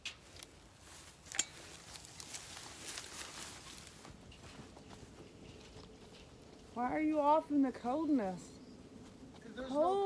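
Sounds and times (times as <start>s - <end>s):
footsteps on dry grass: 0.1s - 10.0s.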